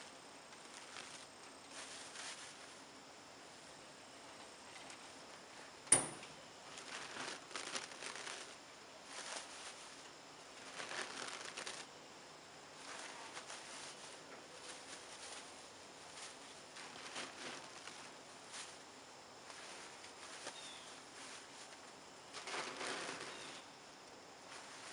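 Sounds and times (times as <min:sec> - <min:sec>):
papery nest crumbling and tearing: 0:00.6 - 0:02.7, 0:06.7 - 0:11.9, 0:12.8 - 0:18.8, 0:19.4 - 0:23.6
plastic bag crinkling: 0:00.6 - 0:02.8, 0:06.6 - 0:11.9, 0:12.8 - 0:18.8, 0:19.6 - 0:23.6.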